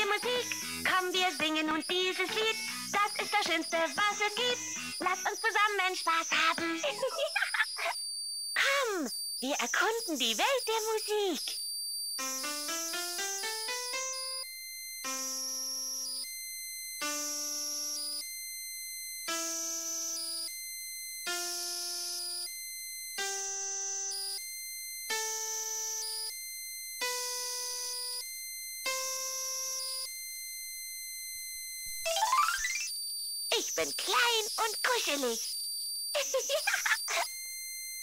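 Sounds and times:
toy synthesized electronic notes: 0:00.0 - 0:08.0, 0:08.6 - 0:11.5, 0:12.2 - 0:16.3, 0:17.0 - 0:18.3, 0:19.3 - 0:20.5, 0:21.3 - 0:22.5, 0:23.2 - 0:24.4, 0:25.1 - 0:26.4, 0:27.0 - 0:30.1, 0:31.9 - 0:35.5, 0:36.2 - 0:37.4.

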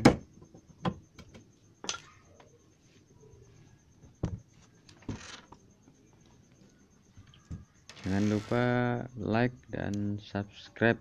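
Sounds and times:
knocks on wooden wardrobe: 0:00.0 - 0:01.0
faint scraping handling sounds: 0:07.9 - 0:08.8.

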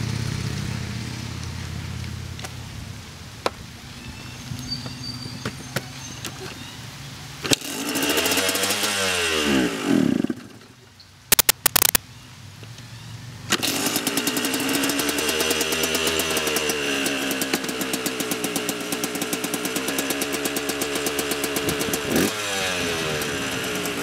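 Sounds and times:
dirt bike engine: 0:07.4 - 0:12.0, 0:13.5 - 0:24.0
sharp engine cracks: 0:10.2 - 0:12.0.

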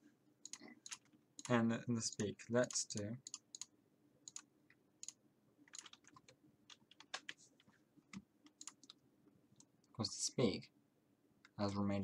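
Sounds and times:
keyboard and mouse clicks: 0:00.4 - 0:07.4, 0:08.1 - 0:09.0.

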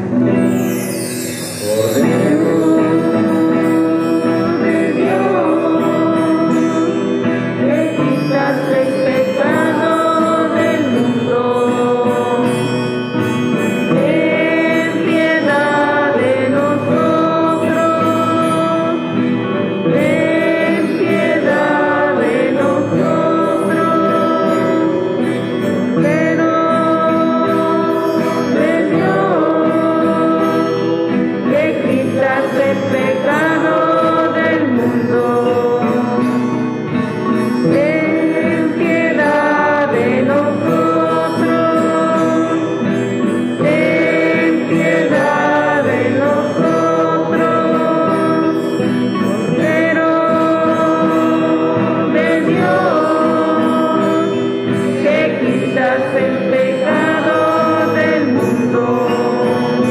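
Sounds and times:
church singing: 0:00.0 - 0:59.9
instrumental accompaniment: 0:00.0 - 0:59.9.

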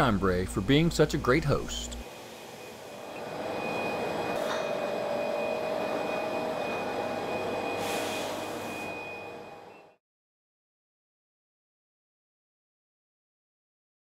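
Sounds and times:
forklift mechanical hum and whine: 0:00.0 - 0:10.0
brief hisses: 0:07.8 - 0:08.6.

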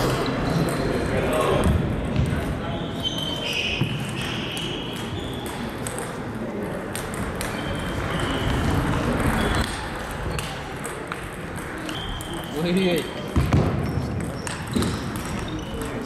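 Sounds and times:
ping pong ball hits: 0:04.0 - 0:12.5.

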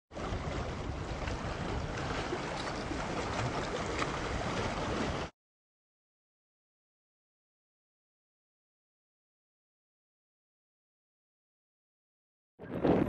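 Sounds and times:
waves splashing over rocks: 0:00.2 - 0:05.3.

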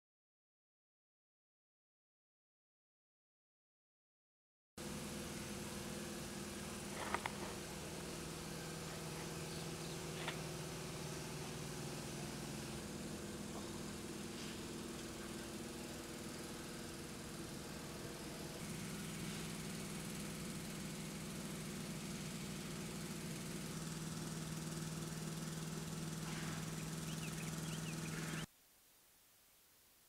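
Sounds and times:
machine humming: 0:04.8 - 0:28.5.

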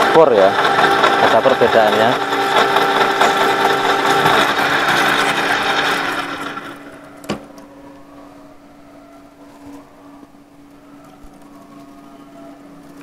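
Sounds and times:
end mill cutting steel: 0:00.0 - 0:07.3
milling machine whine: 0:00.0 - 0:13.0
spindle humming: 0:00.0 - 0:13.0.

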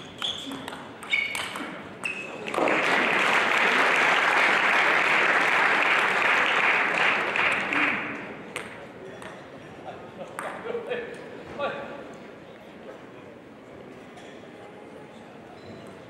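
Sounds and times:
audience applauding: 0:02.4 - 0:08.2.

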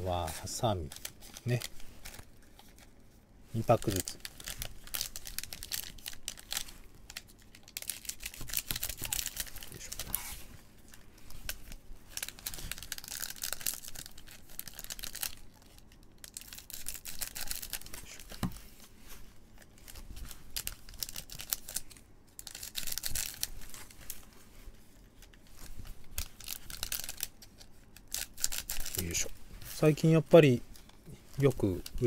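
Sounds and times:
foil wrappers crinkling: 0:00.0 - 0:32.0.

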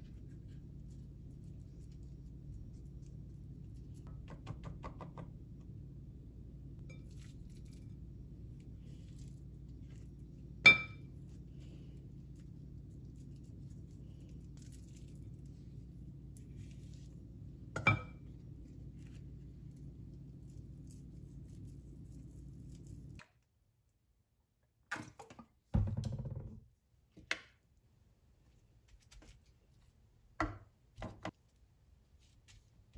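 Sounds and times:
faint low hum: 0:00.0 - 0:24.3
utensil clinking glass bowl: 0:10.6 - 0:11.1, 0:17.8 - 0:18.2.

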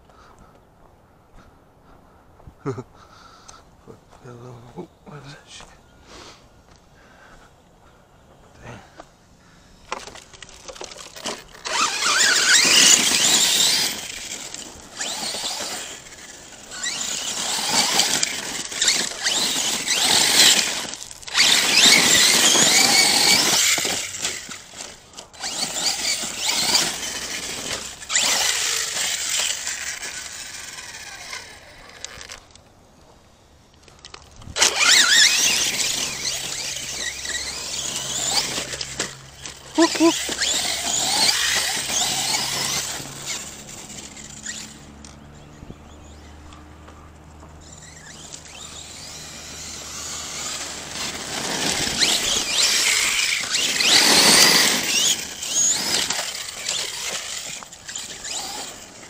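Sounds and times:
tyres hissing in gravel: 0:04.1 - 0:07.5, 0:08.5 - 0:32.5, 0:33.1 - 0:44.9, 0:47.6 - 0:59.0
electric motor whining: 0:09.9 - 0:32.6, 0:34.4 - 0:59.0.

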